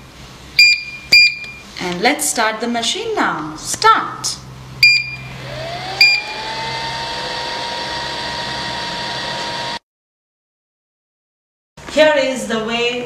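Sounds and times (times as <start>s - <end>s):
short electronic beeps: 0.6s - 1.6s, 4.8s - 5.3s
motor whine spinning up: 5.2s - 9.8s.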